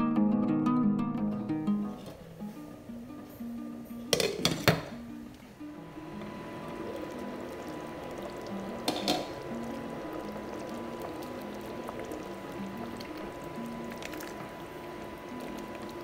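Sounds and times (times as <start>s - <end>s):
soft background music: 0.0s - 16.0s
food bubbling in pot: 5.8s - 16.0s.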